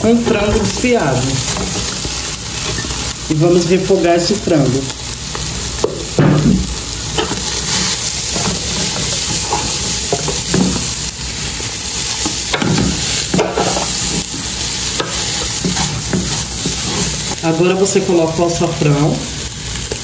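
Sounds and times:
chicken sizzling in oil: 0:00.0 - 0:20.0
wooden spoon scraping pot: 0:13.0 - 0:17.4.

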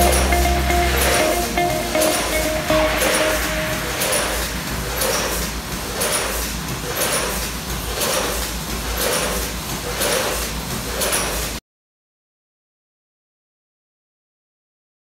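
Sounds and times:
packing machine clacking with hiss: 0:04.0 - 0:11.6.

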